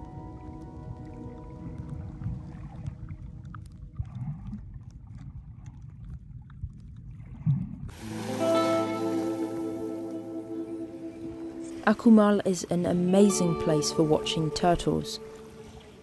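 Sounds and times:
sea water sloshing and gurgling: 0:00.0 - 0:08.7, 0:14.2 - 0:16.0
loud music: 0:08.0 - 0:11.7.

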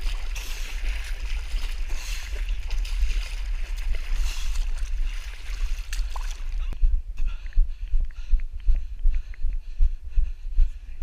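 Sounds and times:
muddy water splashing: 0:00.0 - 0:06.8.

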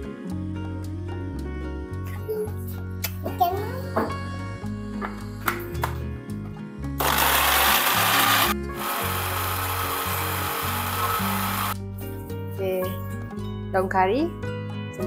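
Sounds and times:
electric blender grinding: 0:07.0 - 0:11.8.

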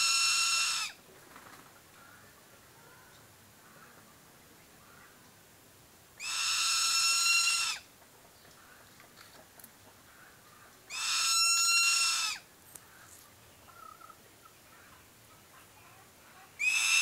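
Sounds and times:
eagle whistled calls: 0:06.2 - 0:07.8, 0:10.9 - 0:12.4, 0:16.6 - 0:17.0.

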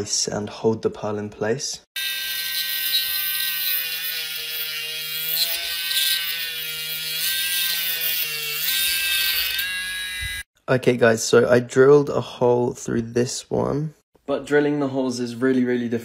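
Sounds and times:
rotary tool drilling whine: 0:02.0 - 0:10.5.

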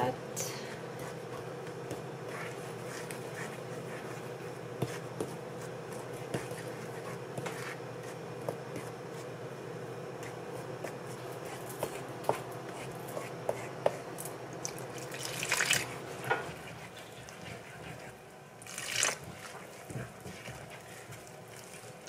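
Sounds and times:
steady background hum: 0:00.0 - 0:22.0
fork scraping flour in bowl: 0:15.8 - 0:18.2, 0:19.0 - 0:22.0.

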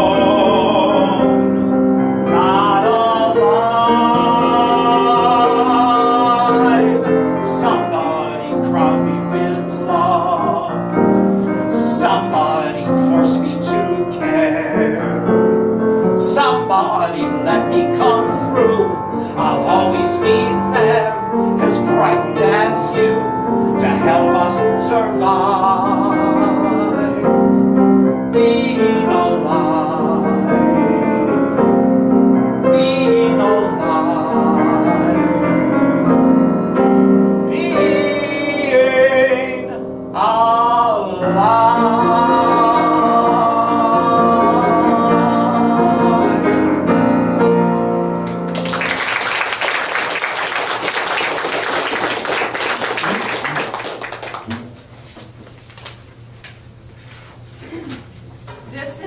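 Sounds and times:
man singing with vibrato: 0:00.0 - 0:27.6, 0:28.2 - 0:31.8, 0:32.6 - 0:36.5, 0:37.4 - 0:47.5
piano accompaniment: 0:00.0 - 0:55.4
audience applause: 0:48.2 - 0:54.8.

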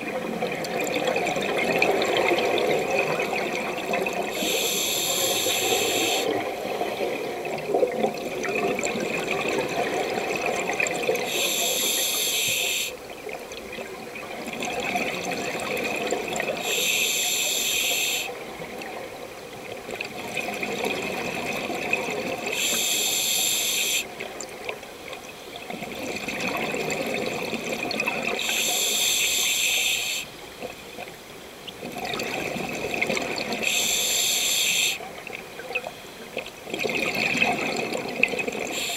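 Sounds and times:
regulator hissing inhale: 0:04.3 - 0:06.4, 0:11.3 - 0:13.0, 0:16.6 - 0:18.4, 0:22.5 - 0:24.1, 0:28.4 - 0:30.3, 0:33.6 - 0:35.0, 0:38.7 - 0:38.9.

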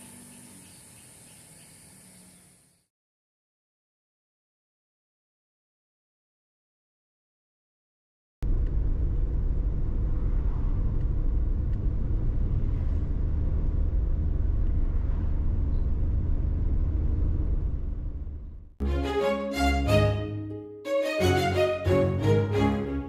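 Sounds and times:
car engine and road noise: 0:08.4 - 0:18.8.

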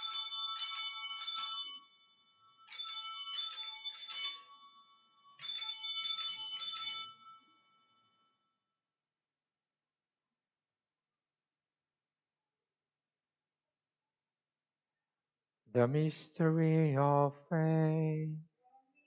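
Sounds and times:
altar bells ringing: 0:00.0 - 0:08.4.

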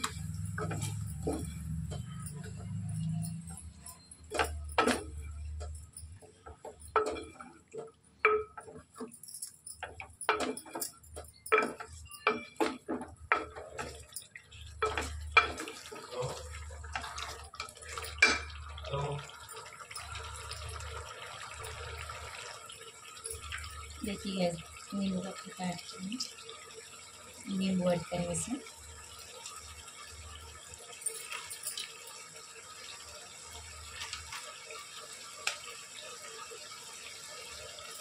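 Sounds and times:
utensils clinking against cookware: 0:00.0 - 0:22.2, 0:31.0 - 0:32.2.

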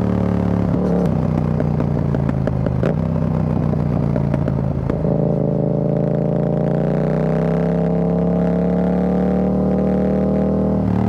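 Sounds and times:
motorcycle engine revving: 0:00.0 - 0:11.0
exhaust crackling and popping: 0:00.5 - 0:06.1.

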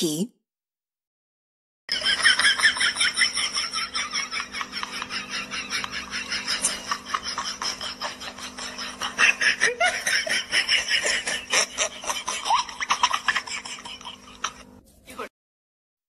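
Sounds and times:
crowd laughing: 0:01.9 - 0:14.8.

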